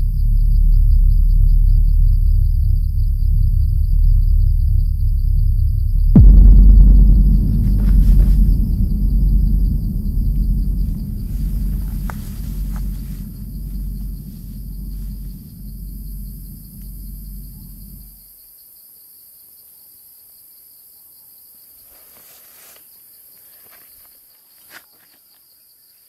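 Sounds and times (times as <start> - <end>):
deep wavering rumble: 0.0 - 18.2.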